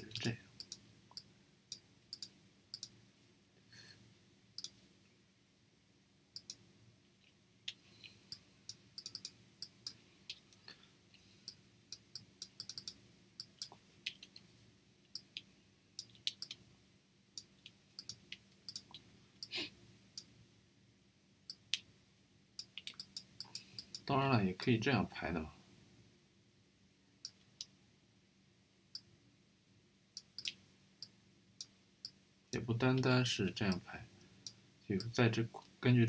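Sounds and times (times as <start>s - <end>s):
faint low hum: 0.0s - 36.0s
mouse and keyboard clicks: 9.0s - 10.0s, 11.9s - 14.5s, 15.2s - 16.6s, 17.4s - 19.0s, 22.6s - 24.0s.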